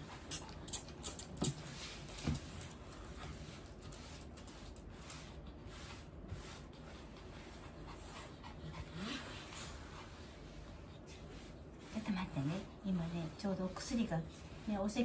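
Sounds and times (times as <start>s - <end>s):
cloth wiping wooden floor: 1.4s - 15.0s.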